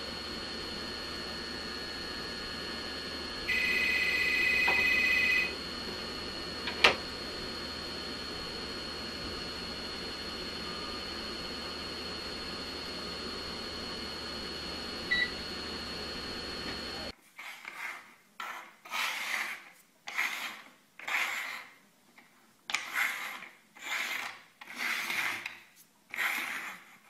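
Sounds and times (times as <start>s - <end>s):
steady high whine: 0.0s - 17.1s
tape hiss and hum: 0.0s - 17.1s
short beep: 3.5s - 5.5s
objects rubbed across wooden table: 17.3s - 21.8s, 22.8s - 27.0s.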